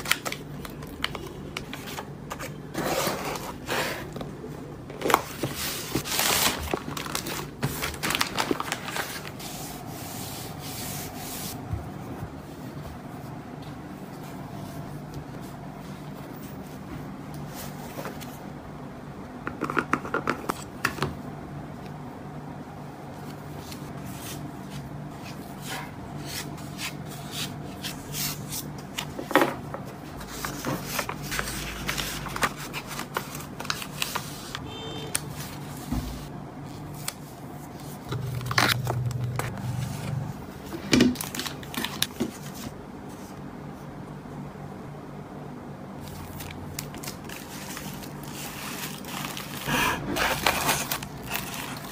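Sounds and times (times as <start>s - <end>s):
paper and card rustling: 5.0s - 11.6s, 25.2s - 34.6s, 35.2s - 43.3s, 46.0s - 51.9s.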